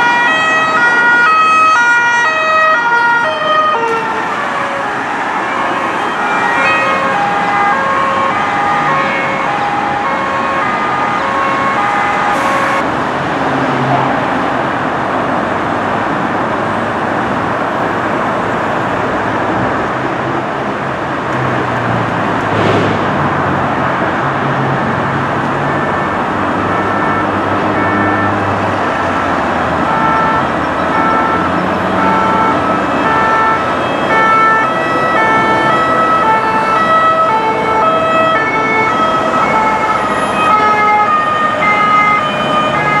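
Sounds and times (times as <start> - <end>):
two-tone emergency siren: 0.0 - 12.8, 24.8 - 43.0
motorway traffic rushing: 0.0 - 43.0.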